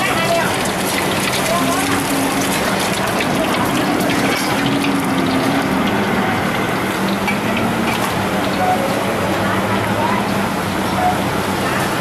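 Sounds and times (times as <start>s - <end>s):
food sizzling in a wok: 0.0s - 9.1s.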